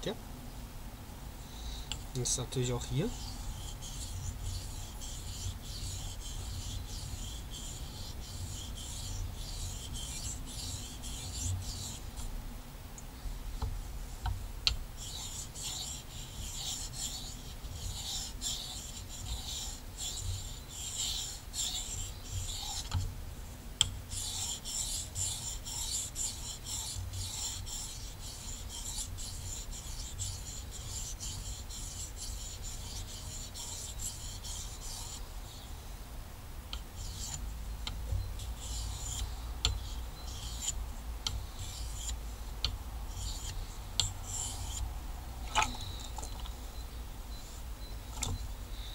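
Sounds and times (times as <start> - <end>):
knife scraping on whetstone: 24.2 - 35.2.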